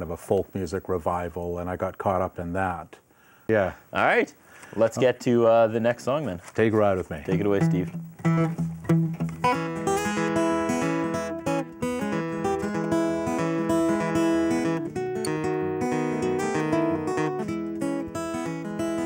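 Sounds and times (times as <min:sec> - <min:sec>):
acoustic guitar strumming: 0:07.2 - 0:19.0.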